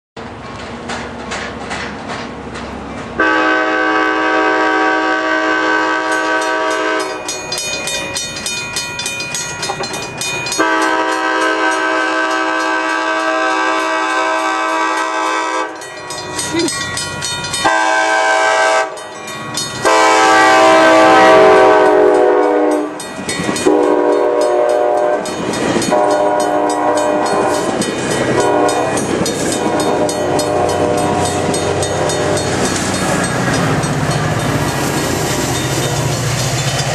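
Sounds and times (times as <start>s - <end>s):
train wheels rumbling on rails: 0.2s - 36.9s
train chime horn blasts: 3.2s - 7.7s, 10.5s - 15.9s, 17.5s - 19.2s, 19.8s - 34.6s.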